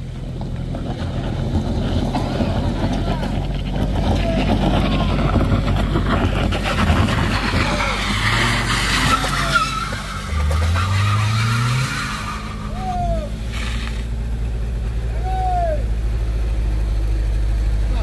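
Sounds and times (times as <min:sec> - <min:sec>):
car engine revving: 0:00.0 - 0:18.0
tyres scrabbling on gravel: 0:00.2 - 0:12.8, 0:13.4 - 0:14.2
tyre squeals: 0:01.9 - 0:14.1.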